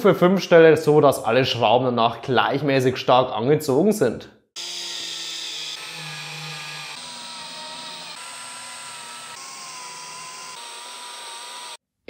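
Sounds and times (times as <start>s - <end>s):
cordless drill motor whine: 4.6s - 11.8s.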